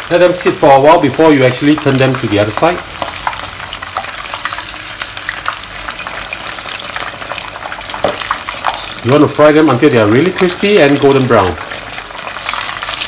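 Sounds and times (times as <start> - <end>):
chicken deep-frying in oil: 0.0 - 13.0.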